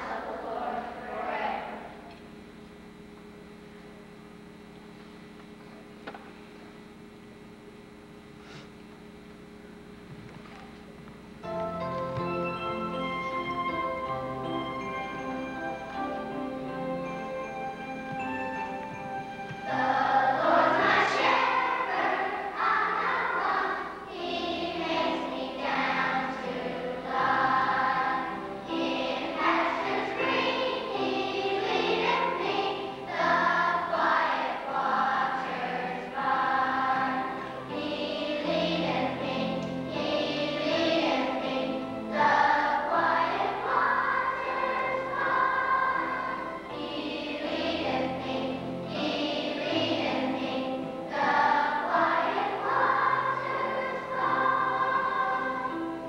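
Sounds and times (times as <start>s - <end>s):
children's choir singing: 0.0s - 2.1s, 12.1s - 56.0s
instrumental backing music: 11.4s - 56.0s.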